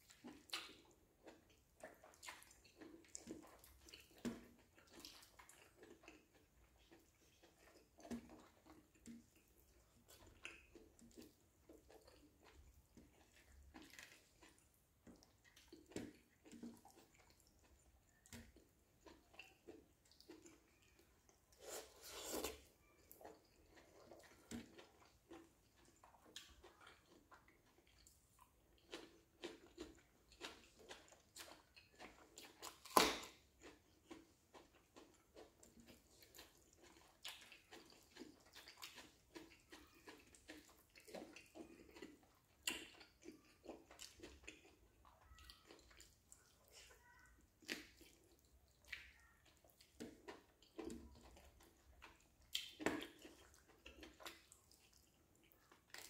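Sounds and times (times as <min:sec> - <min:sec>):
wet chewing clicks and smacks: 0:00.0 - 0:21.5, 0:22.5 - 0:56.0
chicken being torn apart: 0:32.7 - 0:33.4.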